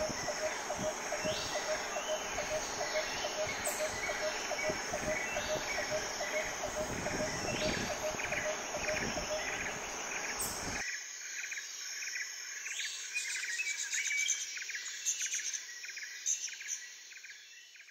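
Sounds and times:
birds: 0:00.0 - 0:10.8
low rushing noise: 0:00.0 - 0:10.8
insects chirping: 0:00.0 - 0:14.1.

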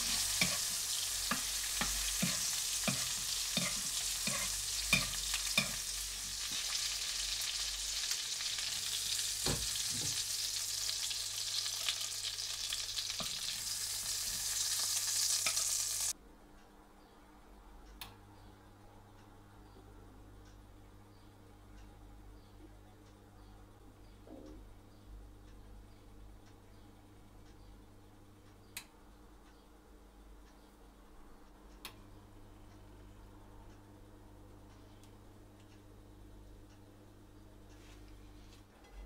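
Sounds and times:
spoon knocking against pan: 0:00.0 - 0:05.8
steak sizzling in butter: 0:00.0 - 0:16.1.

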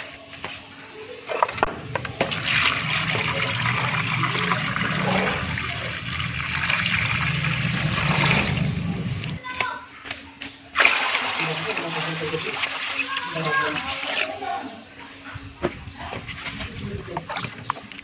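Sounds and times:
water pouring into metal pot: 0:02.2 - 0:09.0.

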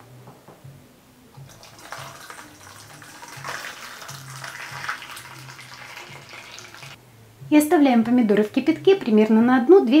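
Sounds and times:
water pouring into a metal bowl: 0:01.4 - 0:07.0.

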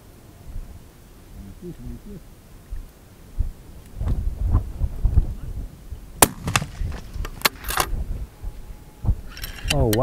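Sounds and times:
wind rumble on microphone: 0:00.0 - 0:10.0
rifle shot: 0:06.2 - 0:07.9.

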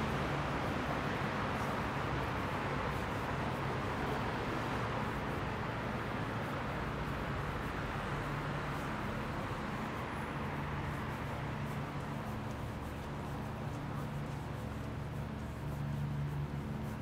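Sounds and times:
traffic: 0:00.0 - 0:17.0.

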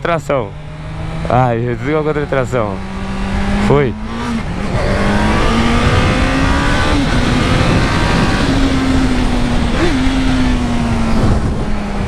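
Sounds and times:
motorcycle engine accelerating: 0:00.0 - 0:12.0
wind noise on microphone: 0:04.3 - 0:12.0.

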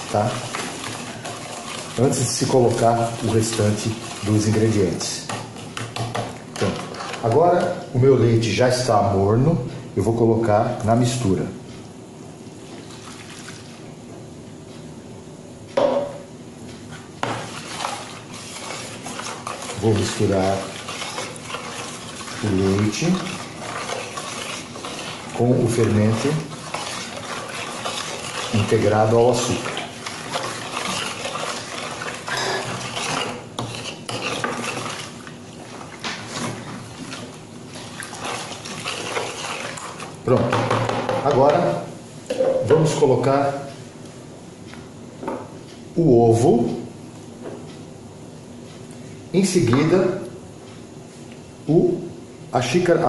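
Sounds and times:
spoon stirring liquid in bowl: 0:00.0 - 0:07.9, 0:17.2 - 0:41.6
spoon knocking plastic bowl: 0:40.3 - 0:41.6.

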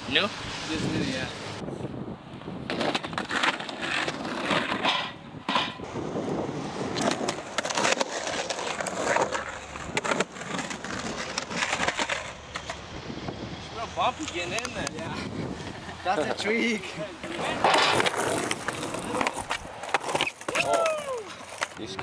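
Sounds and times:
skateboard wheels rolling on concrete: 0:00.0 - 0:22.0
skateboard clacking over bumps: 0:07.0 - 0:12.8.

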